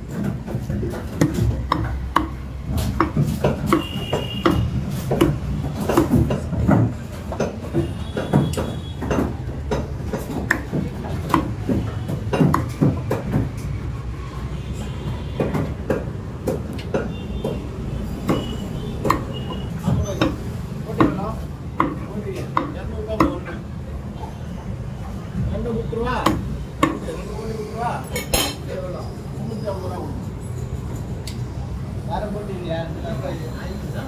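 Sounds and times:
cleaver chopping on wooden block: 0:00.8 - 0:13.5, 0:18.2 - 0:23.5, 0:26.2 - 0:27.0.

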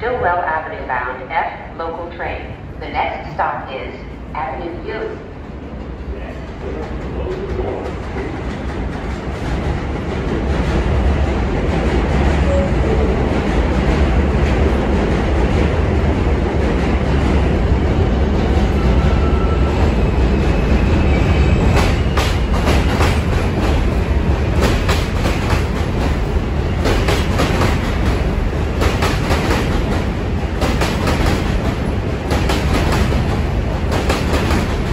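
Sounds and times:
subway train rumbling: 0:00.0 - 0:34.9
train wheels clicking over rail joints: 0:21.7 - 0:34.9.

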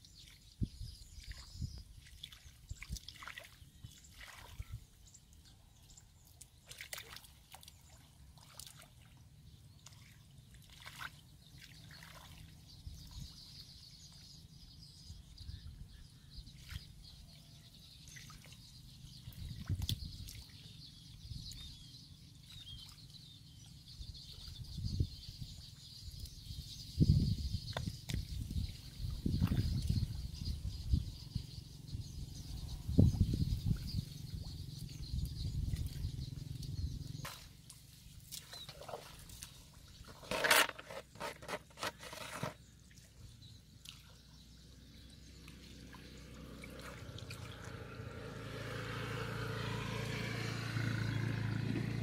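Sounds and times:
water sloshing: 0:01.2 - 0:04.7, 0:06.3 - 0:09.2, 0:09.8 - 0:12.7, 0:35.7 - 0:44.2, 0:45.4 - 0:47.9
mud squelching: 0:06.2 - 0:09.1, 0:35.7 - 0:43.1, 0:45.4 - 0:49.6.

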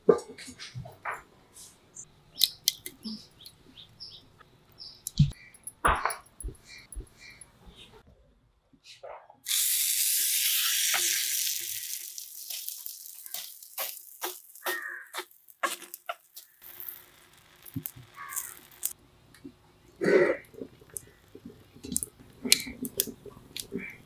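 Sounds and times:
food sizzling in a hot pan: 0:09.5 - 0:19.0.

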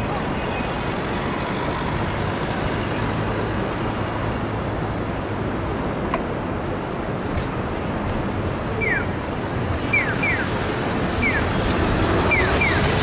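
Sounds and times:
motor traffic: 0:00.0 - 0:13.0
wind and road noise: 0:00.0 - 0:13.0.

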